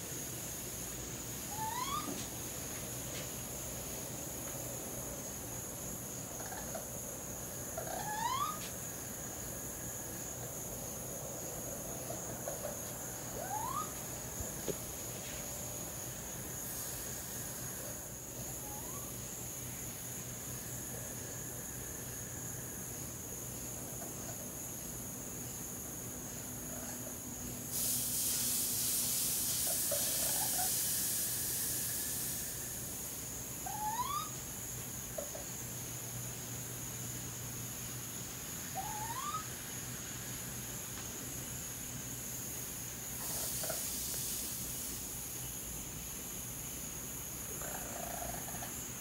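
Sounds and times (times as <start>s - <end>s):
steady hiss: 0.0s - 49.0s
baby raccoons chirping and crying: 1.5s - 2.2s, 7.8s - 8.7s, 12.5s - 14.0s, 33.7s - 34.4s, 38.8s - 39.5s.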